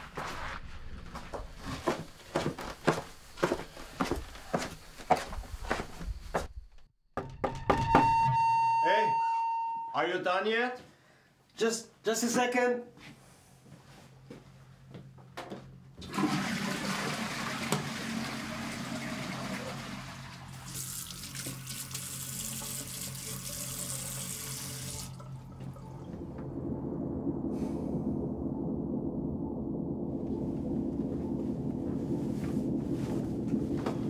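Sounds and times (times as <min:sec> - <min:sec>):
toilet flushing: 0:16.0 - 0:26.4.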